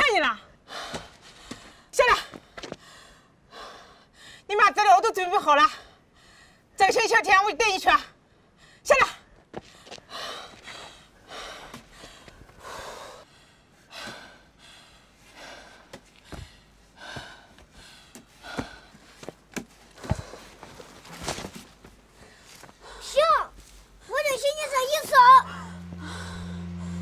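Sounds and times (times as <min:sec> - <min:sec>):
child breathing heavily and gasping: 0:09.6 - 0:20.9, 0:22.1 - 0:24.6.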